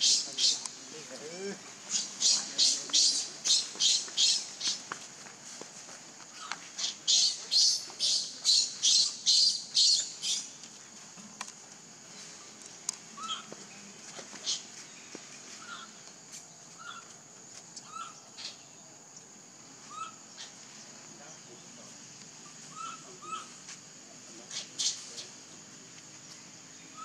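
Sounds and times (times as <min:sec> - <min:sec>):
raspy animal calls: 0:00.0 - 0:00.8, 0:01.8 - 0:04.9, 0:06.3 - 0:10.5, 0:13.2 - 0:13.5, 0:15.6 - 0:16.0, 0:16.8 - 0:17.2, 0:17.8 - 0:18.6, 0:19.8 - 0:20.6, 0:22.6 - 0:23.6
faint chirps: 0:00.0 - 0:05.0, 0:06.2 - 0:27.0
insect drone: 0:00.0 - 0:27.0.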